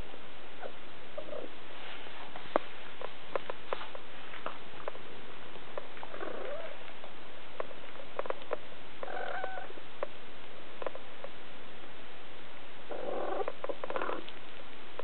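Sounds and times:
small clicks and rustles: 0:01.8 - 0:09.4, 0:13.4 - 0:15.0.

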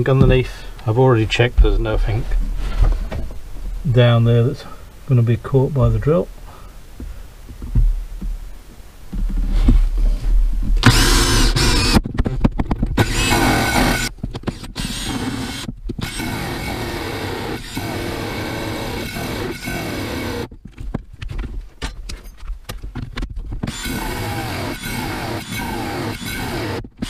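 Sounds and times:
drill cutting with hole saw: 0:10.8 - 0:12.0, 0:13.0 - 0:20.5, 0:23.7 - 0:27.0.

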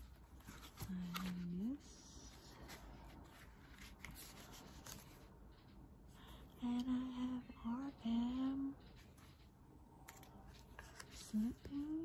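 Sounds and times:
paper pages rustling: 0:00.0 - 0:01.6, 0:02.2 - 0:05.3, 0:10.0 - 0:11.9.

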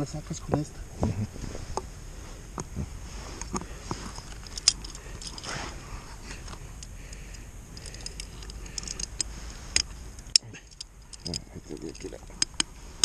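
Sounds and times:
handling noises: 0:00.5 - 0:13.0.

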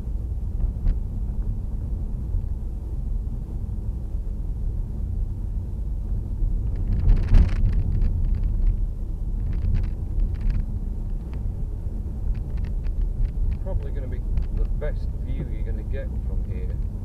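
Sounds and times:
car engine and road noise: 0:00.0 - 0:17.0
rattling clicks: 0:09.4 - 0:11.5, 0:12.2 - 0:13.6.

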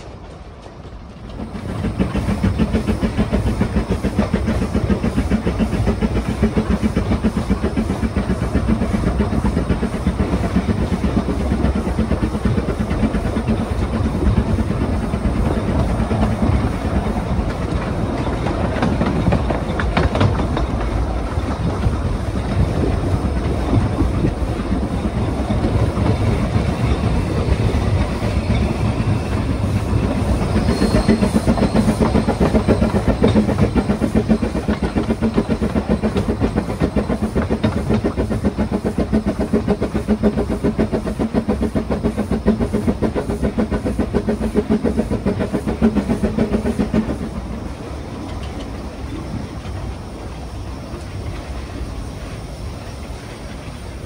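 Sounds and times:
steam locomotive rumble: 0:00.0 - 0:54.0
wheels clattering on rails: 0:00.0 - 0:54.0
short high squeal: 0:30.4 - 0:32.3.

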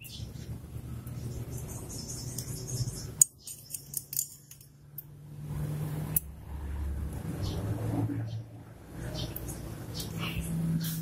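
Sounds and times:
small metal clicks: 0:03.2 - 0:05.2.

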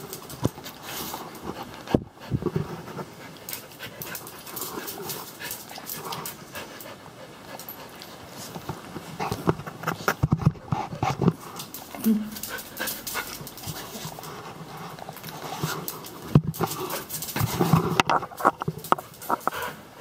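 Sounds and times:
dog panting: 0:00.0 - 0:08.6, 0:10.7 - 0:20.0
sharp clicks and knocks: 0:16.0 - 0:19.6.

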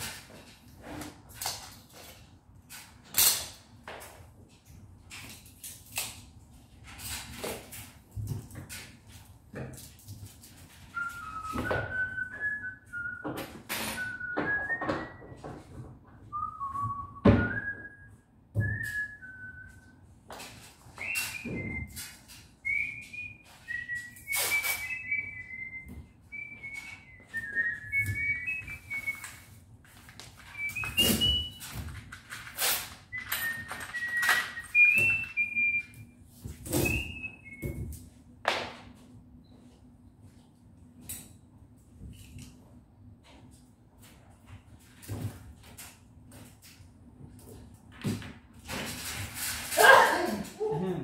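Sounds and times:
person whistling a tune: 0:11.0 - 0:15.5, 0:16.3 - 0:20.0, 0:21.0 - 0:29.5, 0:30.5 - 0:31.7, 0:33.1 - 0:36.1, 0:36.7 - 0:37.9.

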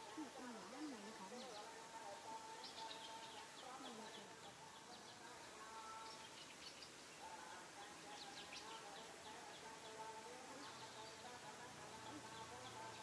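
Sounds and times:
low steady background: 0:00.0 - 0:13.0.

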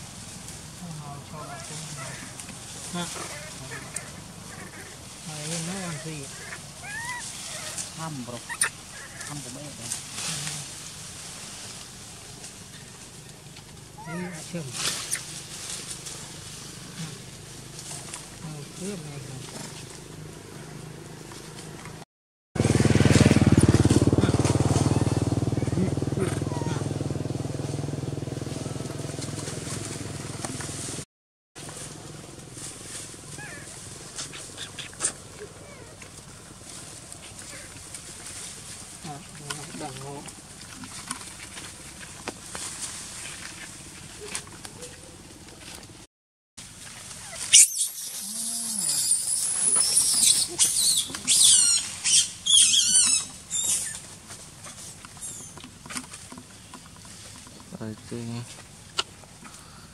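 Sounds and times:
faint outdoor background: 0:00.0 - 0:59.9
monkeys screaming: 0:01.3 - 0:02.4, 0:03.0 - 0:05.0, 0:05.7 - 0:09.6, 0:14.0 - 0:15.4, 0:25.6 - 0:26.9, 0:33.3 - 0:36.0, 0:47.2 - 0:54.0
motorcycle engine idling: 0:22.6 - 0:31.0.

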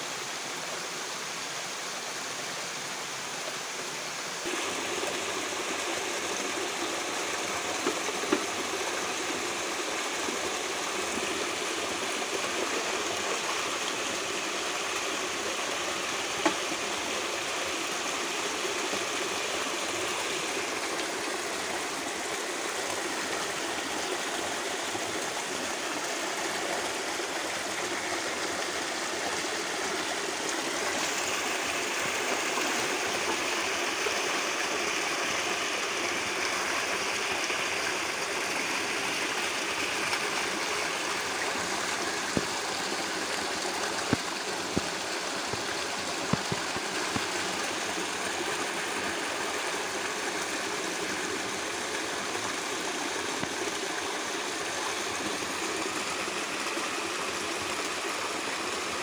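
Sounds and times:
stream rushing over rocks: 0:00.0 - 0:59.0.

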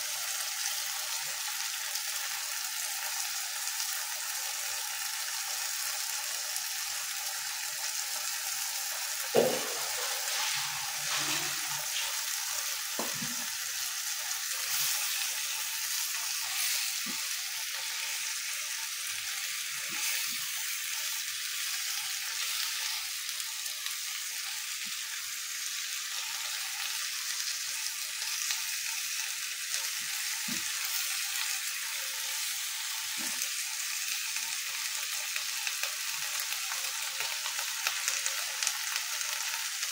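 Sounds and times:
greens and tofu sizzling in a wok: 0:00.0 - 0:39.9
knocks against the pan: 0:09.4 - 0:10.0, 0:13.0 - 0:13.4.

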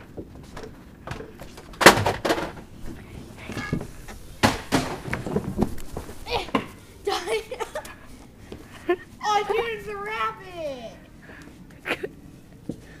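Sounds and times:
sharp thumps and knocks: 0:00.6 - 0:06.8.

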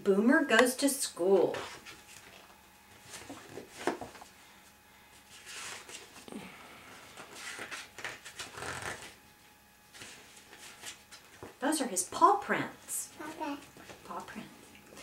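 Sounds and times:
paper pages rustling: 0:07.1 - 0:09.2.

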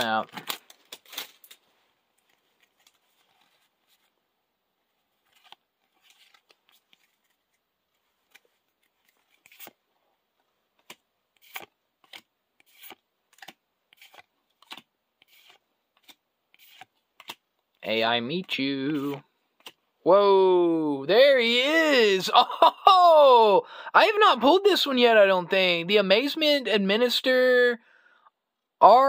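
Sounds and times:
trading cards flicking and clicking: 0:10.8 - 0:17.4.

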